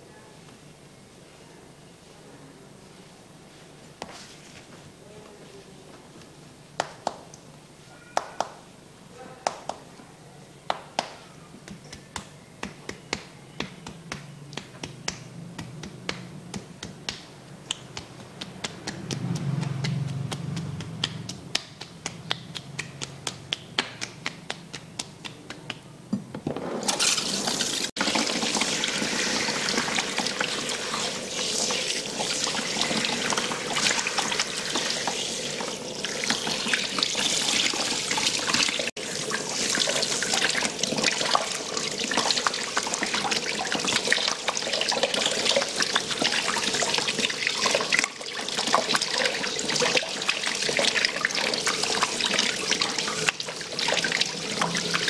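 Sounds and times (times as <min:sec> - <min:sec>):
palms tapping on head: 0:10.7 - 0:26.4.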